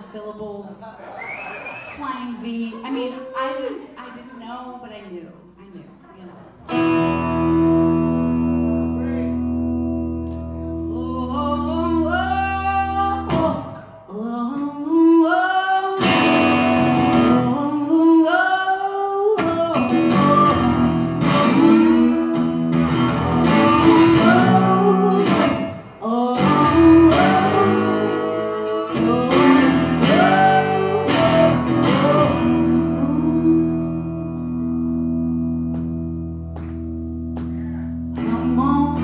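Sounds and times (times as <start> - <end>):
electric guitar: 6.6 - 14.2, 16.0 - 18.0, 19.3 - 39.0
woman singing: 10.8 - 35.1, 38.2 - 39.0.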